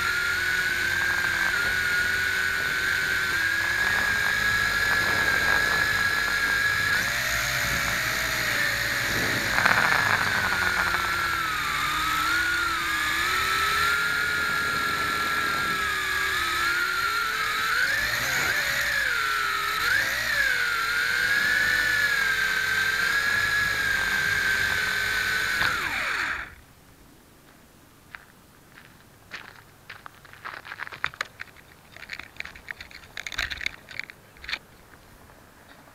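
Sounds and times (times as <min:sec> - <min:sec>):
drone propellers whining: 0:00.0 - 0:26.6.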